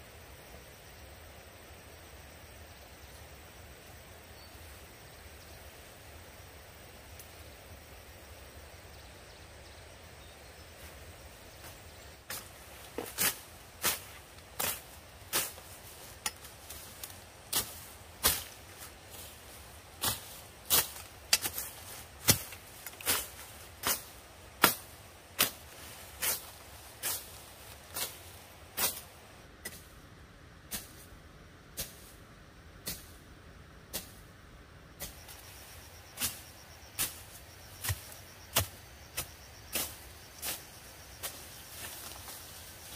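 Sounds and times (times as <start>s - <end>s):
machete chopping undergrowth: 11.6s - 28.2s, 28.8s - 29.9s, 36.2s - 40.6s.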